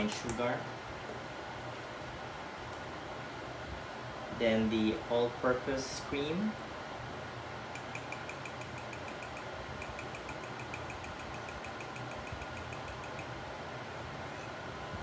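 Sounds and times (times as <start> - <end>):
low mechanical hum: 0.0 - 15.0
fast even ticking: 7.8 - 13.4.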